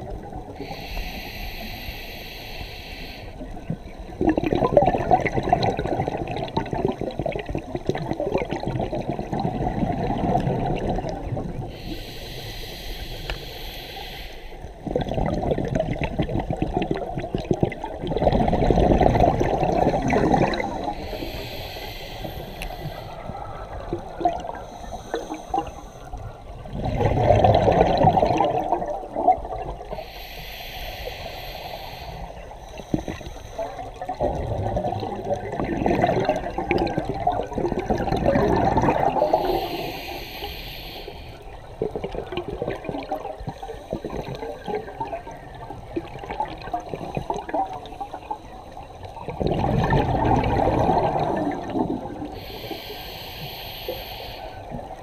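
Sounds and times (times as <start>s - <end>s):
exhaled air bubbling underwater: 0.0s - 55.0s
regulator inhale hiss: 0.5s - 3.7s, 11.6s - 14.8s, 20.5s - 23.8s, 24.4s - 26.5s, 29.8s - 34.2s, 39.1s - 41.7s, 52.1s - 55.0s.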